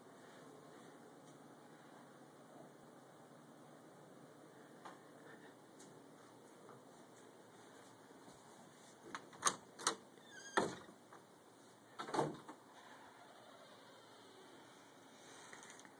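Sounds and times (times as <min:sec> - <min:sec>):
door squeak: 0:10.2 - 0:10.9, 0:12.8 - 0:14.9.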